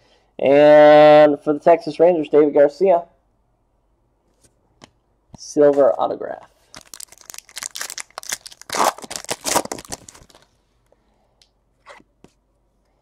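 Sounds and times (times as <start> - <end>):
foil wrapper tearing and crinkling: 6.7 - 10.5.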